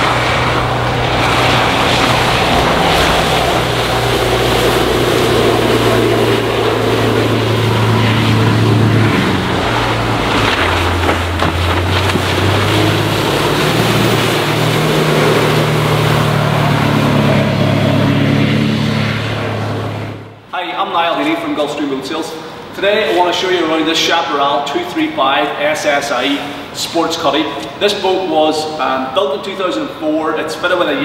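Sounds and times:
boat engine running at speed: 0.0s - 20.5s
water rushing off hull: 0.0s - 30.0s.

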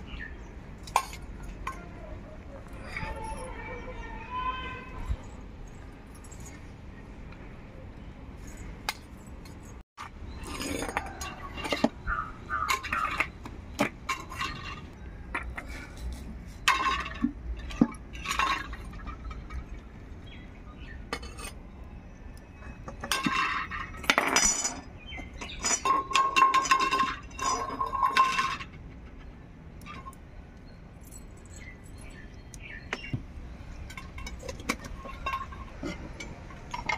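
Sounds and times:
steel vessels and lids clinking: 10.3s - 16.0s, 16.6s - 19.8s, 22.7s - 28.8s, 33.7s - 36.9s.

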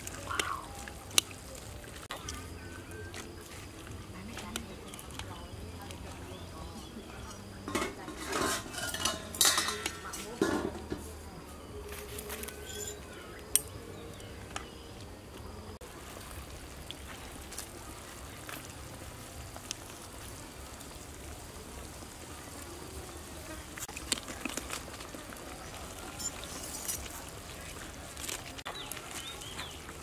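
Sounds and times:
insects buzzing: 0.0s - 30.0s
chopsticks tapping metal wok: 7.7s - 11.0s.

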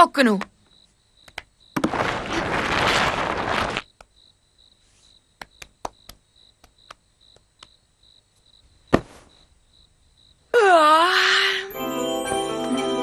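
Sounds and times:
crickets chirping: 0.0s - 12.0s
thump on bed: 8.9s - 9.3s.

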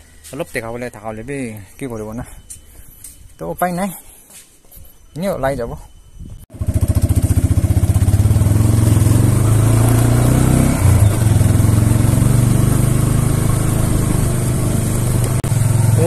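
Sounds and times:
vehicle engine running: 6.5s - 16.0s.

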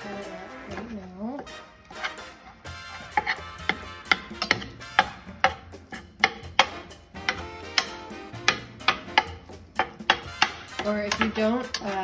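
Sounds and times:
fork tapping against pan: 3.2s - 12.0s.

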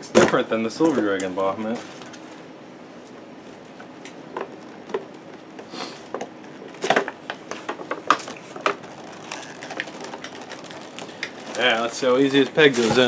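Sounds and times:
packaging crinkling and clicking: 6.1s - 13.0s.

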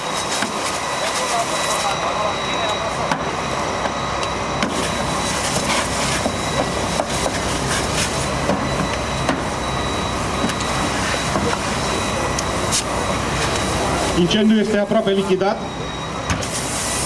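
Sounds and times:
fire engine running: 0.0s - 17.0s
hose spraying hiss: 16.4s - 17.0s.

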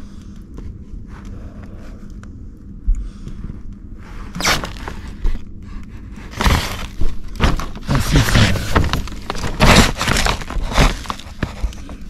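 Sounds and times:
plastic sheeting crinkling: 4.4s - 5.4s, 6.3s - 12.0s.

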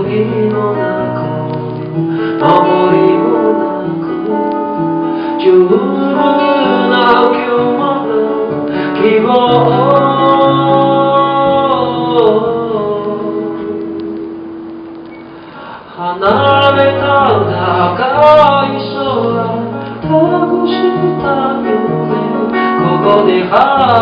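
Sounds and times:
man singing a slow ballad: 0.0s - 14.2s, 15.6s - 24.0s
acoustic guitar: 0.0s - 24.0s.

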